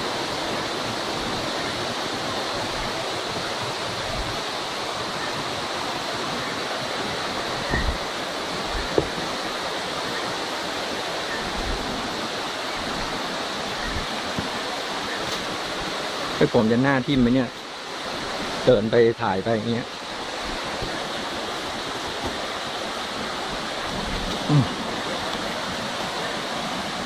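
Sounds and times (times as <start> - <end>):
waterfall rushing: 0.0 - 27.0
soft knocks: 8.8 - 9.2.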